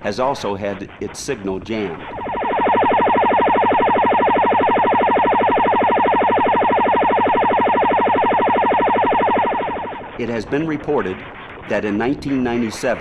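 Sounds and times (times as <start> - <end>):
pulsing electronic jamming buzz: 2.0 - 10.2.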